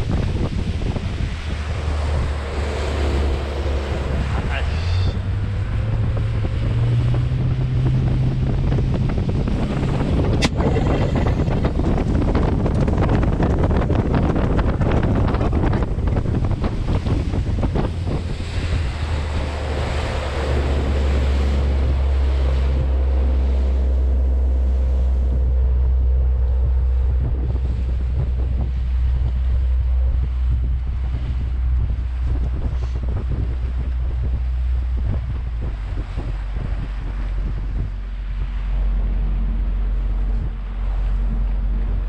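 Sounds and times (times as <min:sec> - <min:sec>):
small boat motor running: 0:00.0 - 0:42.0
water rushing past hull: 0:00.0 - 0:42.0
wind buffeting microphone: 0:00.0 - 0:42.0.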